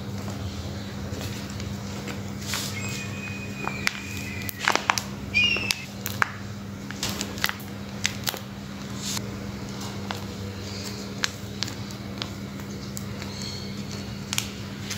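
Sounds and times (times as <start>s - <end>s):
thin high tone: 2.7s - 5.9s.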